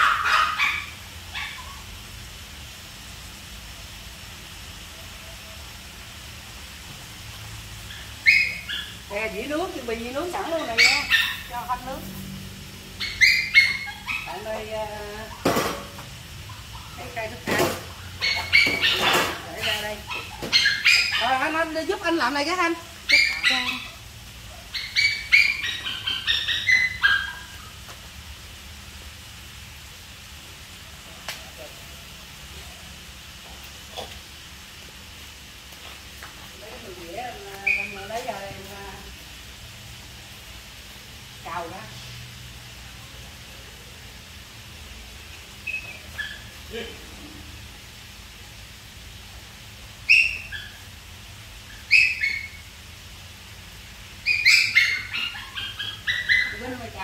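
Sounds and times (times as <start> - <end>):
dog barking: 0.0 - 1.8, 10.4 - 11.6, 13.0 - 14.5, 18.2 - 21.7, 23.1 - 27.6, 45.8 - 46.9, 54.3 - 56.9
animal giving high calls: 18.0 - 21.7, 24.7 - 27.8, 54.2 - 57.0.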